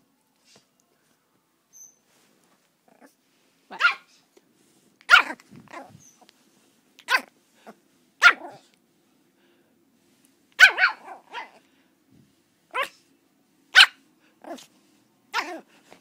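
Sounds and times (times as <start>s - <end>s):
small dog barking: 3.7s - 4.2s, 5.1s - 6.1s, 7.0s - 8.7s, 10.6s - 11.6s, 12.7s - 13.0s, 13.7s - 14.7s, 15.3s - 15.7s.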